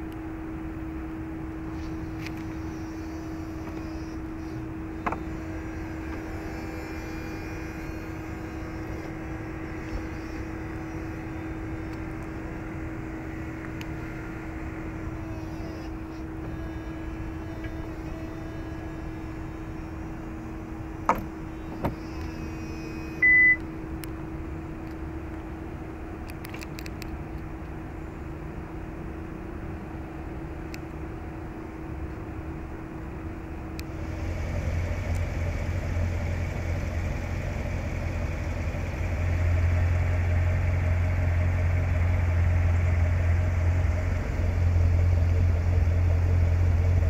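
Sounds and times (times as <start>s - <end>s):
steady hum: 0.0s - 47.0s
electric motors whirring: 1.7s - 23.7s
short high beep: 23.0s - 23.6s.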